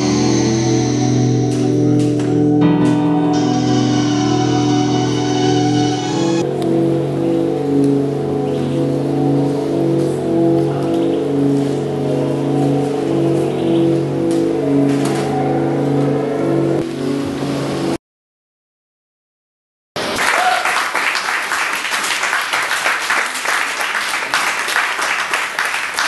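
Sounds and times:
synth pad chords: 0.0 - 18.0
audience applauding: 20.0 - 26.0.

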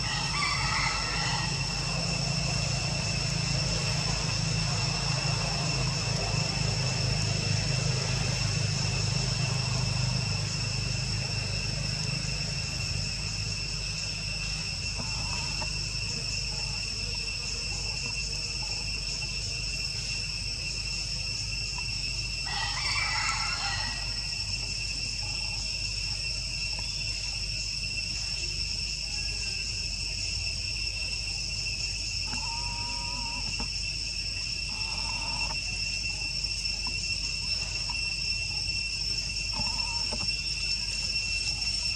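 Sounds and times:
insects droning: 0.0 - 41.9
low hum: 1.4 - 22.4.

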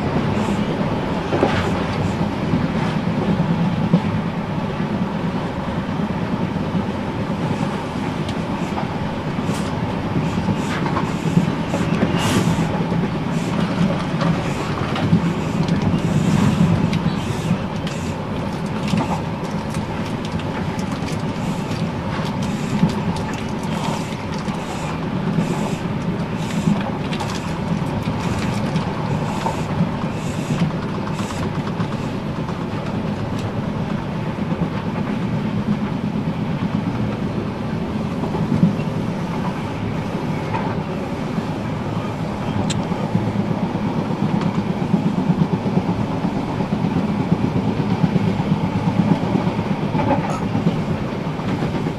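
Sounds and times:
train track clicks: 0.0 - 5.2, 5.8 - 51.9
train wheels rumbling on rail: 0.0 - 51.9.

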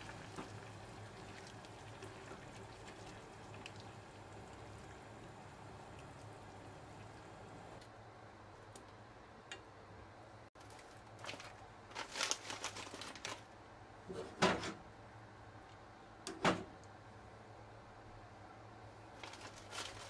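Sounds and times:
low steady hum: 0.0 - 11.9.

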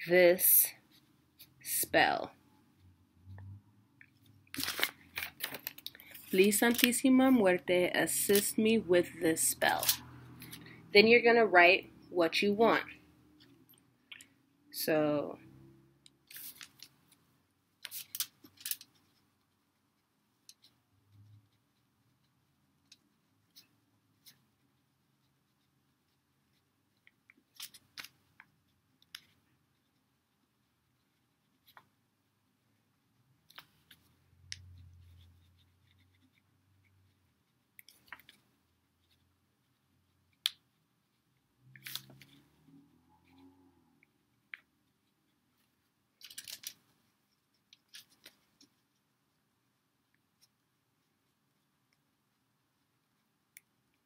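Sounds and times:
pen scratching on paper: 18.9 - 27.8, 28.5 - 32.3, 33.7 - 42.6.

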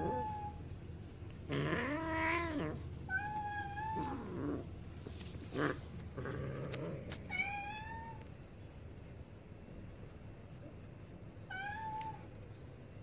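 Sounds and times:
cats play-fighting: 1.2 - 8.3
cat meowing high-pitched: 11.5 - 12.2.

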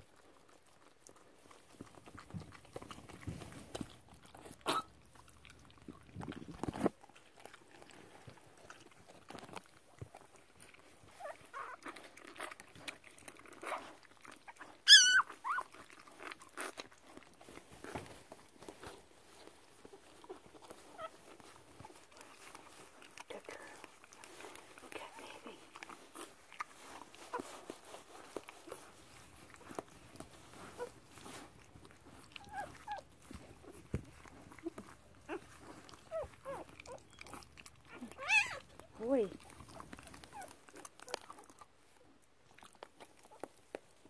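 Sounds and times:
dog licking puppy: 0.0 - 44.0
puppy squealing: 4.6 - 4.9, 14.8 - 15.7, 36.1 - 38.8.

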